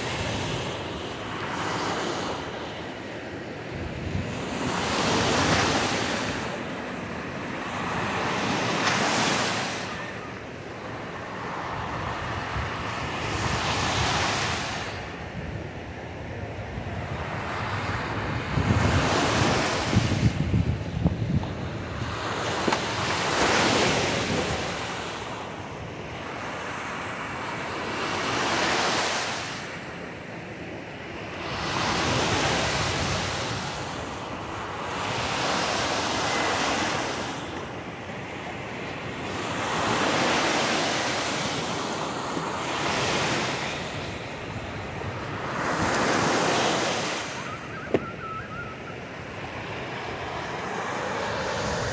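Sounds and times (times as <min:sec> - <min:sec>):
waves breaking on beach: 0:00.0 - 0:51.9
wind rumbling on microphone: 0:03.6 - 0:06.6, 0:11.8 - 0:25.0, 0:42.9 - 0:51.9.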